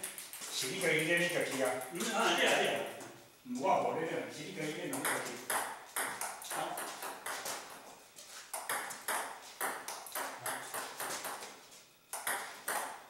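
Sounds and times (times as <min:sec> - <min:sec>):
table tennis ball clicks: 0:12.1 - 0:13.0.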